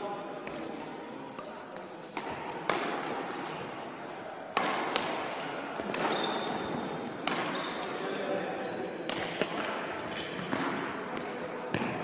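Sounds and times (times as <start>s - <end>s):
racket striking shuttlecock: 2.1s - 3.4s, 4.5s - 8.0s, 9.0s - 10.6s.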